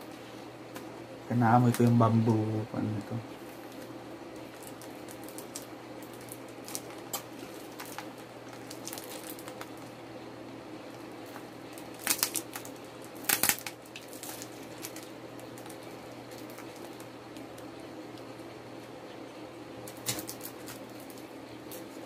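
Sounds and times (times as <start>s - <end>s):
low steady hum: 0.0s - 22.0s
plastic wrapping crinkling: 1.6s - 10.0s, 10.9s - 18.5s, 19.8s - 22.0s
plastic ripping: 3.6s - 9.9s, 11.3s - 17.7s, 19.8s - 22.0s.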